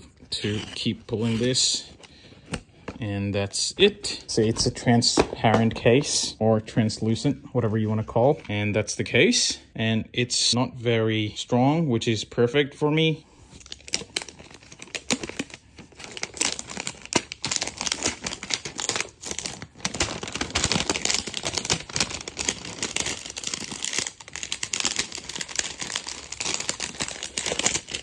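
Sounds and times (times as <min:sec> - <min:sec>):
plastic film crinkling: 0:13.6 - 0:28.0.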